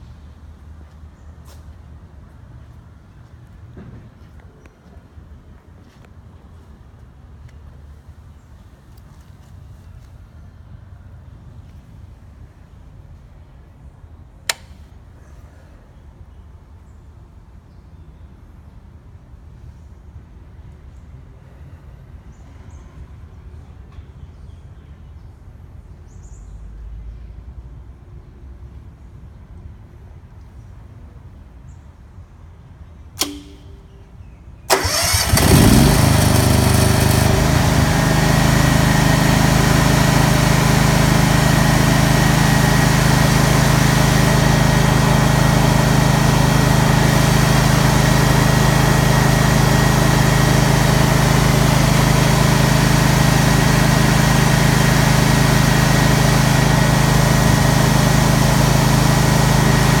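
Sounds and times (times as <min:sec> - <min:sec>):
single click: 0:14.5 - 0:14.9, 0:33.2 - 0:34.0
generator engine running: 0:33.2 - 0:34.0, 0:34.7 - 1:00.0
generator starter cranking: 0:33.2 - 1:00.0.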